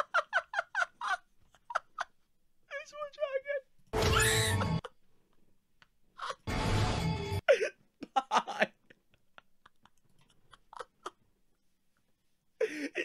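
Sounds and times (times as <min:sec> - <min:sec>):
man laughing: 0:00.0 - 0:02.1, 0:07.5 - 0:11.2, 0:12.6 - 0:13.0.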